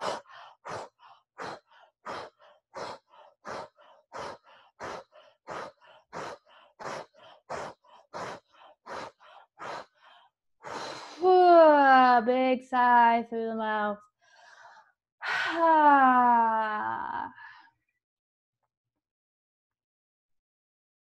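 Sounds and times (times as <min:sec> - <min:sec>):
woman breathing rapidly: 0:00.0 - 0:11.3, 0:14.2 - 0:15.7.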